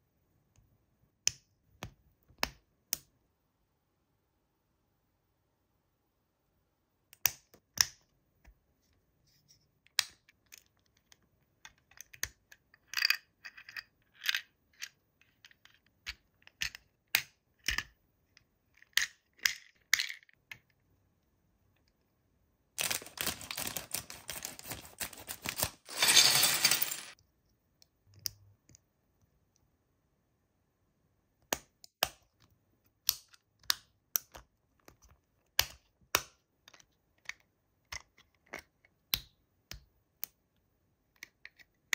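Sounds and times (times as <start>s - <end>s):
packaging clicks and taps: 22.8s - 26.1s
packaging rustling: 22.8s - 27.2s.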